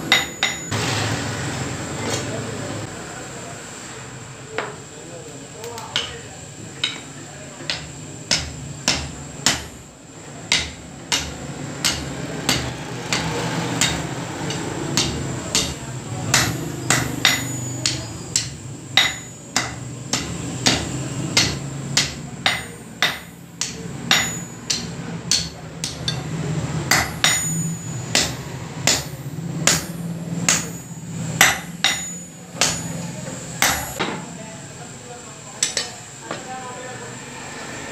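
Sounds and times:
hammer striking iron on anvil: 0:00.0 - 0:00.8, 0:05.7 - 0:06.2, 0:06.8 - 0:09.9, 0:10.5 - 0:34.2, 0:35.6 - 0:36.4.

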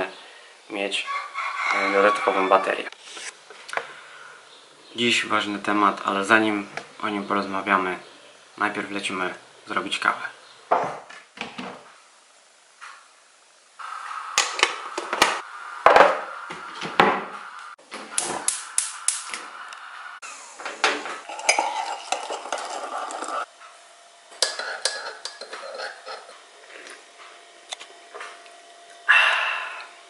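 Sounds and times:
metal spoon clinking and knocking: 0:21.3 - 0:23.4, 0:24.4 - 0:26.3
teaspoon stirring in mug: 0:21.3 - 0:23.5, 0:24.4 - 0:26.4.

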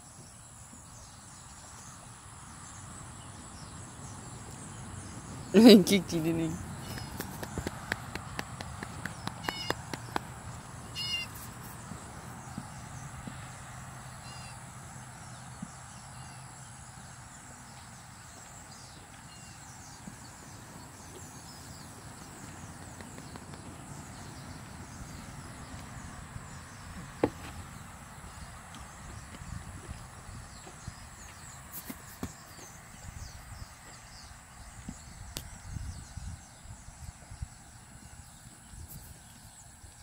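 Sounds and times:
faint outdoor background: 0:00.0 - 0:40.0
high-pitched animal calls: 0:09.4 - 0:09.8, 0:10.9 - 0:11.4.

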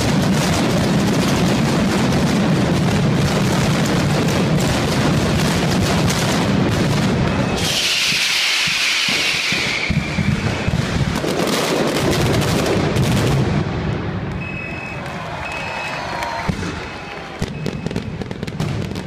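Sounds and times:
firecracker barrage bangs: 0:00.0 - 0:14.5, 0:16.3 - 0:19.0
loud hiss: 0:07.5 - 0:10.6.

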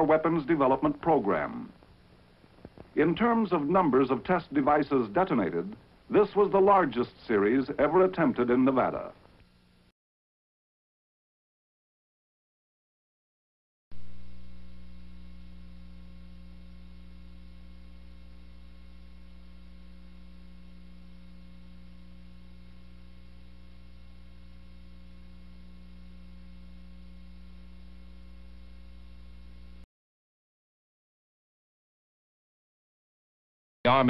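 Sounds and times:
electrical hum: 0:00.0 - 0:09.9, 0:13.9 - 0:29.9.

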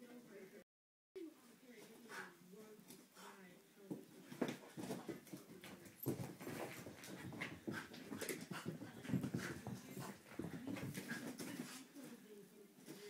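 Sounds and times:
dog paws thudding and scrabbling: 0:03.8 - 0:11.9
dog panting: 0:04.4 - 0:11.9.

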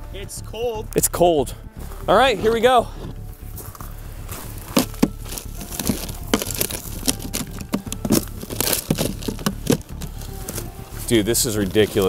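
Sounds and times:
dry ice crunching: 0:03.3 - 0:12.0.

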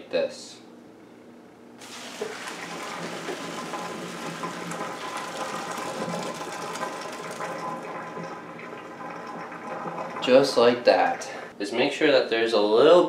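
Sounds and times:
water draining into sink: 0:01.8 - 0:11.5.

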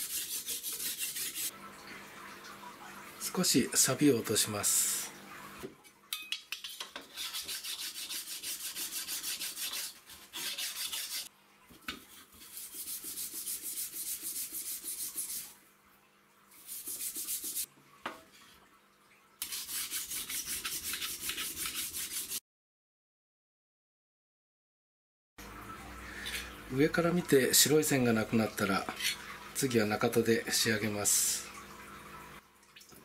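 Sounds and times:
knife scraping on whetstone: 0:00.0 - 0:01.5, 0:06.5 - 0:11.3, 0:19.4 - 0:22.4.

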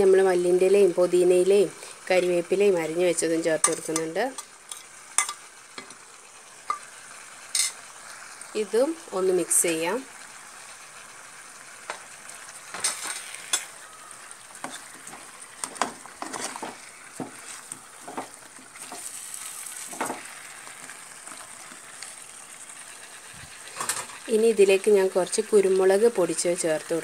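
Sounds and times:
sizzling: 0:00.0 - 0:27.0
spatula scraping a pan: 0:14.6 - 0:20.4.

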